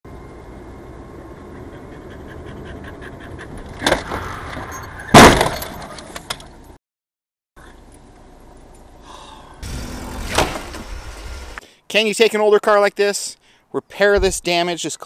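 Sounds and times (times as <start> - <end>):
road noise: 0.1 - 6.8, 7.6 - 11.9
car crash impact: 5.1 - 5.9, 9.6 - 11.0.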